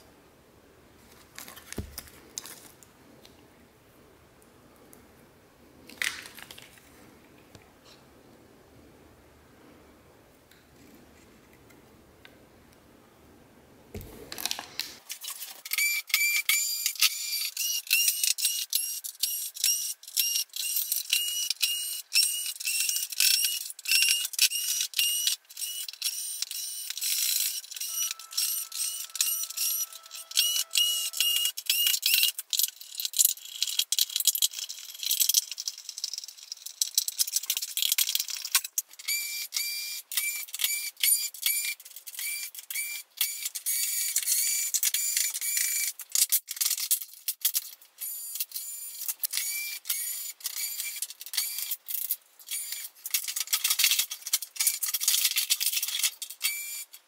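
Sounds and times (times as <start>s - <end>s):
high whirs bending in pitch: 27.8s - 31.6s.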